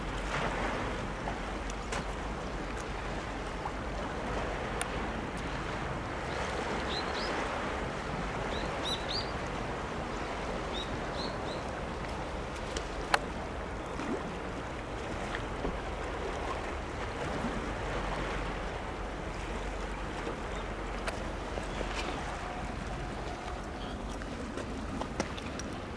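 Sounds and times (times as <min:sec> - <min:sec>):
sea washing against rocks: 0:11.7 - 0:25.9.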